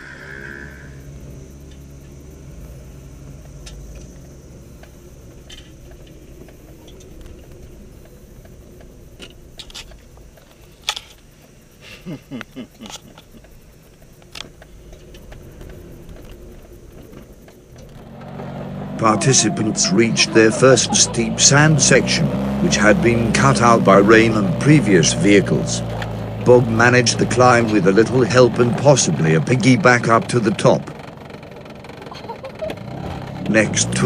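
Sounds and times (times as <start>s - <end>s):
car engine running low: 0.0s - 34.0s
short rising engine revs: 15.1s - 34.0s.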